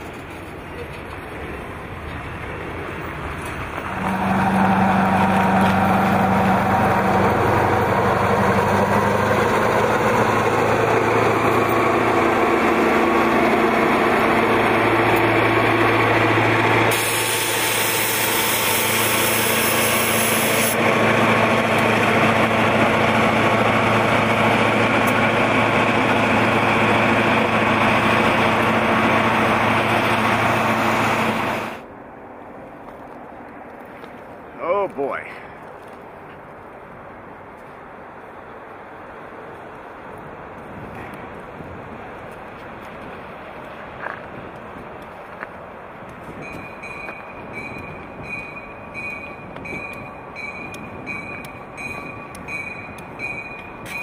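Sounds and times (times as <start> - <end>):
diesel locomotives passing: 0.0 - 54.0
loud hiss: 16.8 - 20.8.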